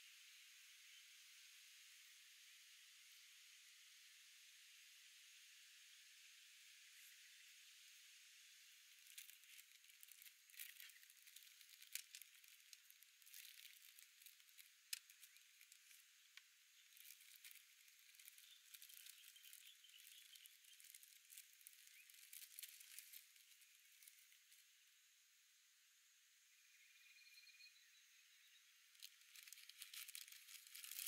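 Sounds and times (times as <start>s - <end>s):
soft steady hiss: 0.0s - 31.0s
plastic packet crinkling: 8.9s - 24.6s, 29.0s - 31.0s.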